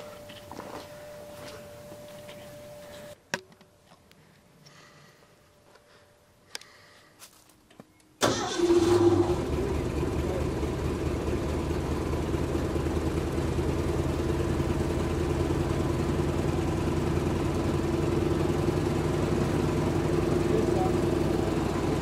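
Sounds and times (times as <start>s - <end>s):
air compressor engine starting: 8.2s - 10.5s.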